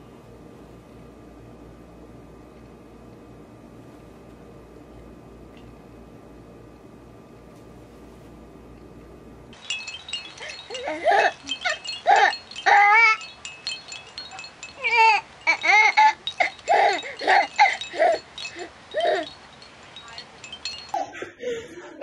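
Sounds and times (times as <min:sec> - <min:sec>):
small bells jingling: 0:09.5 - 0:21.7.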